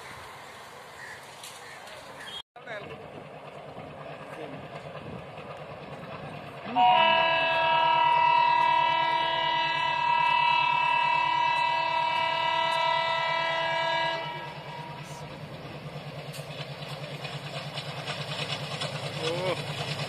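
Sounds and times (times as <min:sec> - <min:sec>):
train rumble: 0:00.0 - 0:20.0
locomotive horn blast: 0:06.7 - 0:15.2.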